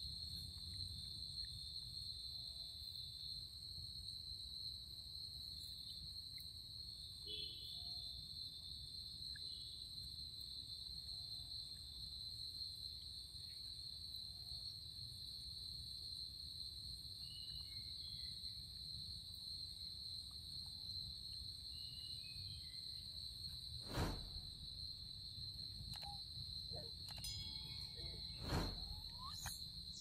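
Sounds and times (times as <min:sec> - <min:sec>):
crickets droning: 0:00.0 - 0:30.0
faint short chirps: 0:27.1 - 0:30.0.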